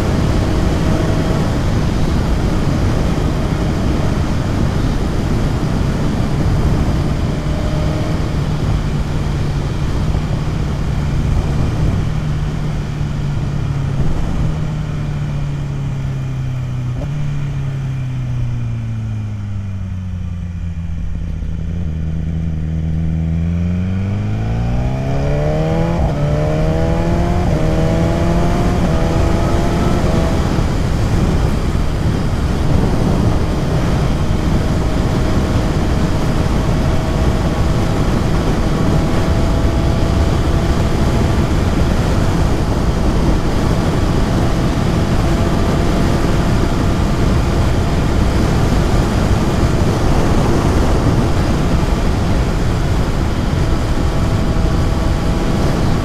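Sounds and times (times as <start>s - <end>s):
wind rush on microphone: 0.0s - 18.4s, 20.8s - 56.0s
motorcycle engine: 0.0s - 56.0s.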